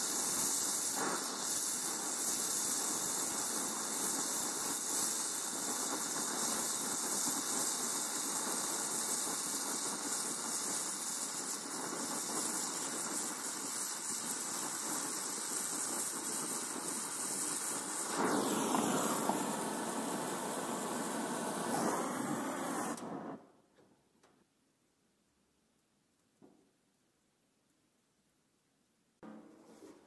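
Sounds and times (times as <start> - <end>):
welding torch flame hissing: 0.0 - 23.7.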